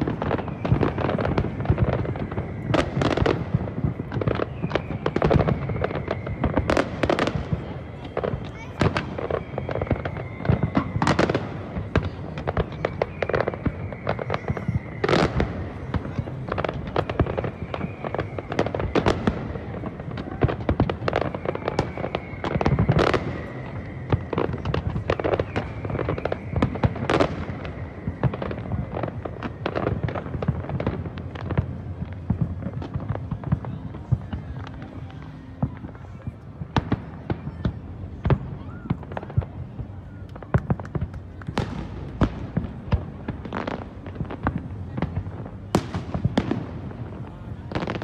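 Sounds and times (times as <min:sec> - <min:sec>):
firework bursts and crackling: 0:00.0 - 0:48.0
loud firework bangs: 0:00.0 - 0:48.0.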